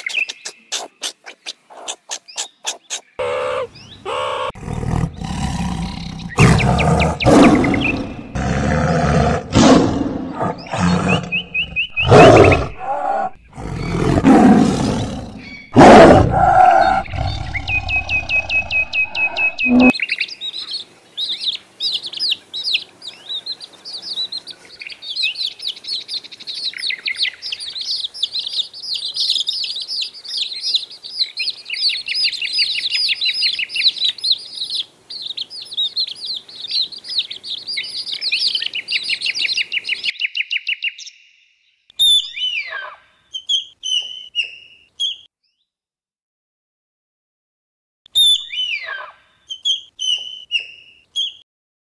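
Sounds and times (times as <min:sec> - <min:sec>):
tiger roaring: 0:03.2 - 0:19.9.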